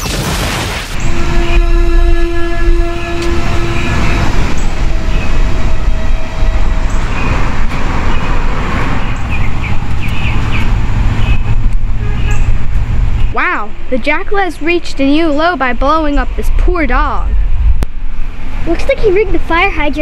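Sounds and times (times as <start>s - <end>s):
train horn blast: 1.0s - 8.8s, 11.9s - 12.5s
train rumbling past: 1.0s - 20.0s.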